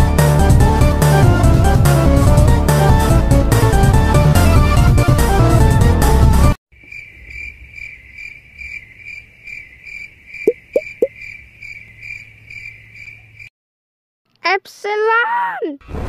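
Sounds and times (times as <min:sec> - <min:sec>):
cricket chirping sound effect: 0:06.8 - 0:13.5.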